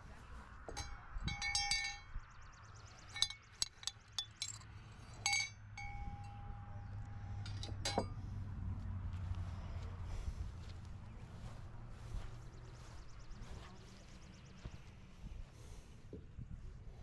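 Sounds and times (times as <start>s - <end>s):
short metallic ring: 0.7s - 2.2s, 3.0s - 8.3s.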